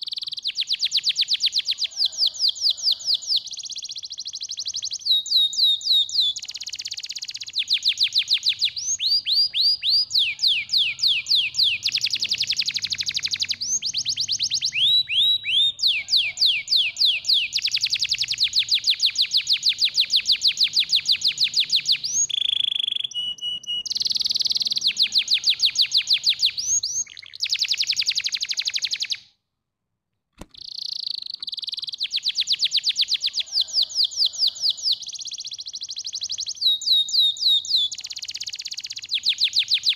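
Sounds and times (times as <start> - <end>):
canary singing trills: 0.0 - 29.2, 30.5 - 39.9
single click: 30.4 - 30.7.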